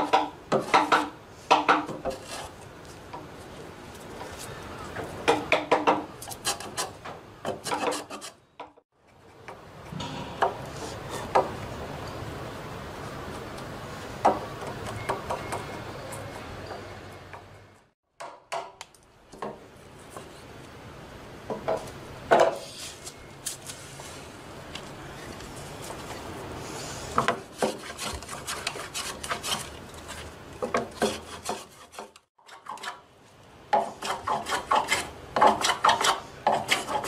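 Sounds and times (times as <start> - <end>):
hand tool scraping wood: 0.0 - 2.7, 6.2 - 8.4, 26.8 - 33.1, 33.7 - 37.0.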